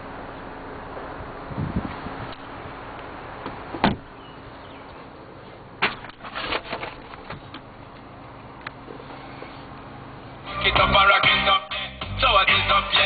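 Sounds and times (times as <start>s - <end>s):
outside noise: 0.0s - 13.0s
car door shutting: 3.4s - 4.1s.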